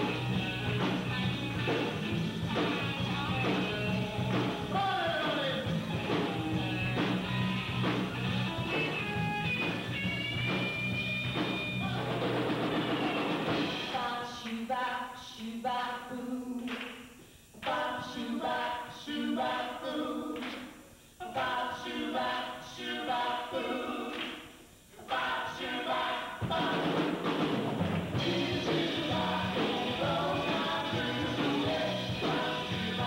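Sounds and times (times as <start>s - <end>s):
group of voices singing: 0.0s - 7.0s, 13.2s - 27.5s, 28.1s - 33.0s
band playing: 0.0s - 13.9s, 26.4s - 33.0s.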